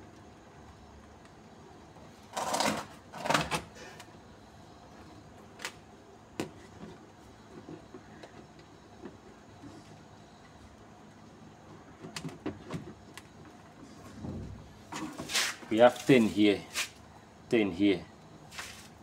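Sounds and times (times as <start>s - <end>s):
scraping rustles: 13.7s - 17.0s.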